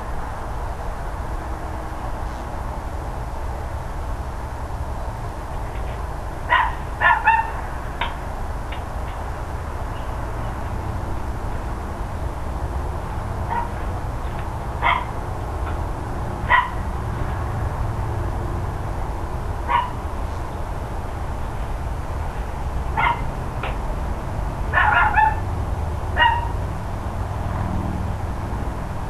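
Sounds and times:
dog barking: 0:06.5 - 0:07.6, 0:13.5 - 0:13.8, 0:14.8 - 0:15.1, 0:16.5 - 0:16.8, 0:19.7 - 0:20.0, 0:23.0 - 0:23.3, 0:24.7 - 0:25.4, 0:26.2 - 0:26.6.

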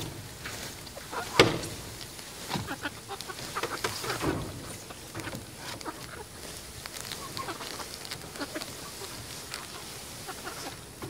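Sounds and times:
hens clucking: 0:00.0 - 0:11.0.

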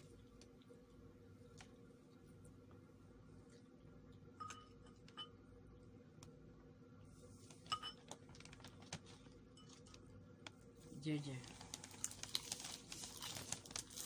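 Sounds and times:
faint steady hum: 0:00.0 - 0:14.0
metal spoon clinking ceramic bowl: 0:04.4 - 0:05.4, 0:07.7 - 0:08.1.

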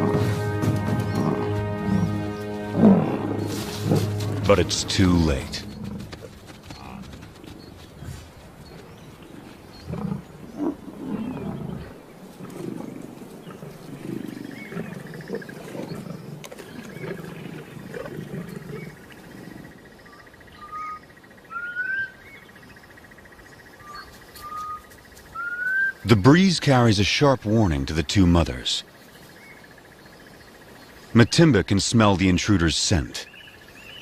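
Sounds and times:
lions growling: 0:00.0 - 0:08.5, 0:09.2 - 0:19.8
bird chirps: 0:33.2 - 0:34.0.

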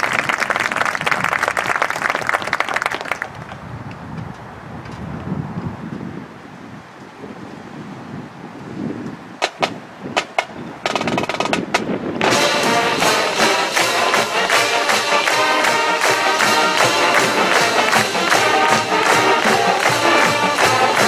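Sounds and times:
drum strikes and roll: 0:09.4 - 0:21.0
marching band playing loud: 0:09.4 - 0:21.0.

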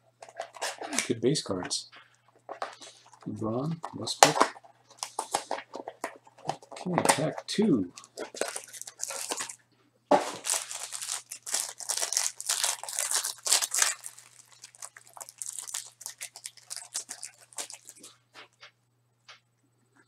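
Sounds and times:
foil crinkling and crackling: 0:08.0 - 0:09.6, 0:10.2 - 0:18.6
foil wrapper tearing: 0:08.0 - 0:09.6, 0:10.2 - 0:18.1.

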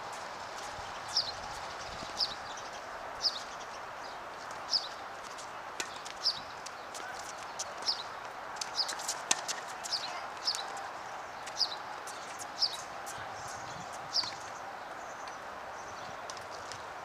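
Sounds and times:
steady background noise: 0:00.0 - 0:17.0
bird chirping: 0:13.6 - 0:16.2.

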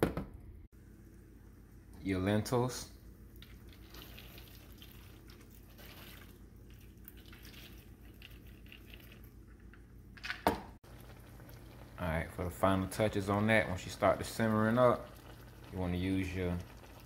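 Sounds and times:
pan simmering: 0:03.2 - 0:09.7, 0:10.8 - 0:17.0.

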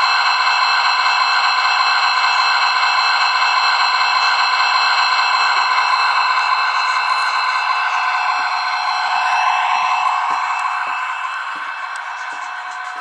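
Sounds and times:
tinny model locomotive engine sound: 0:00.0 - 0:13.0.

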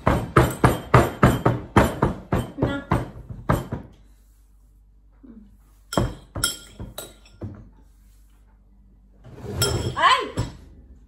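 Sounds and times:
dishes rattling: 0:09.4 - 0:10.7.

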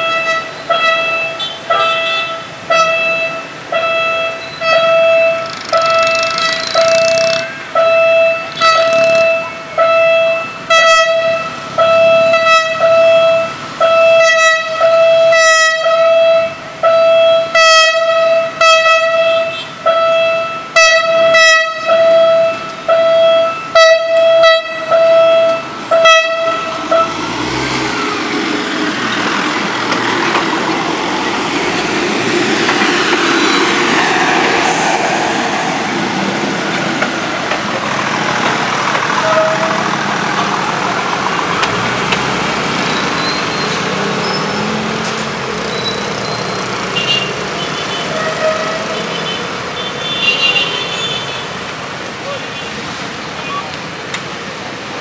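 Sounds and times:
train horn short blasts: 0:00.0 - 0:11.5, 0:12.2 - 0:27.3, 0:39.2 - 0:39.9, 0:47.9 - 0:51.4
train engine and wheels passing: 0:00.0 - 0:50.2.

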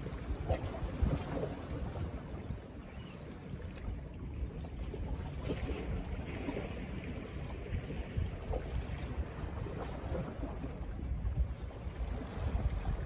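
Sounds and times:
wind buffeting microphone: 0:00.0 - 0:13.0
small waves against rocks: 0:04.8 - 0:13.0.

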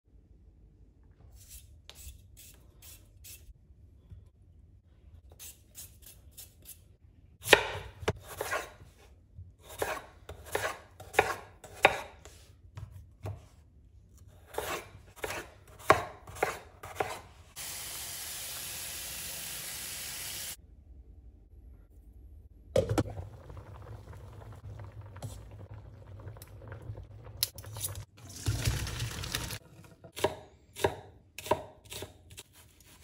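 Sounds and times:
knife cutting on wooden board: 0:07.5 - 0:08.8, 0:09.6 - 0:13.4, 0:14.4 - 0:17.2.

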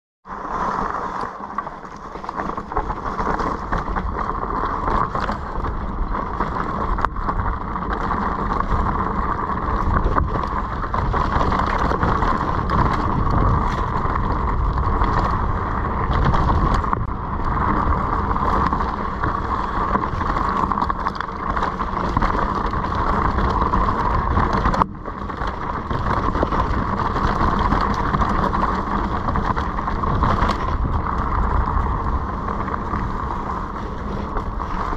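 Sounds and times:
vehicle rumbling on rocky trail: 0:00.2 - 0:34.9
wind rushing on microphone: 0:00.3 - 0:34.9.

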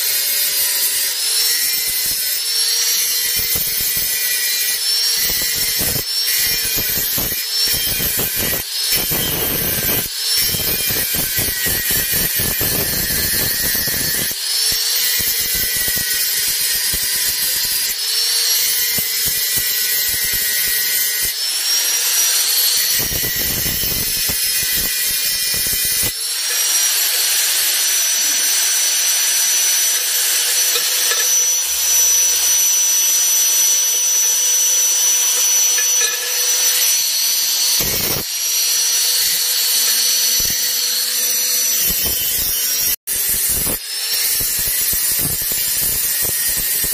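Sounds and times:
angle grinder grinding metal: 0:00.0 - 0:46.9.

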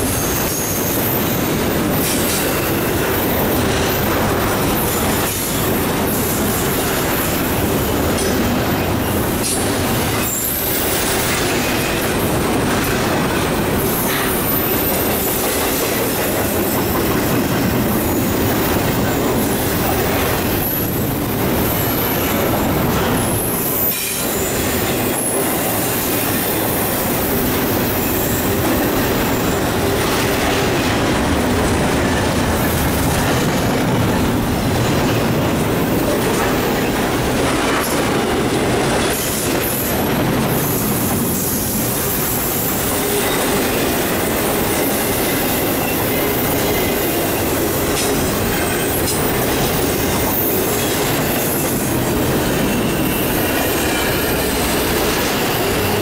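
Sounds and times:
high wheel squeals: 0:00.0 - 0:09.2, 0:10.0 - 0:12.0, 0:13.8 - 0:21.0, 0:21.6 - 0:30.8, 0:40.6 - 0:56.0
freight train wheels rumbling on rail: 0:00.0 - 0:56.0.

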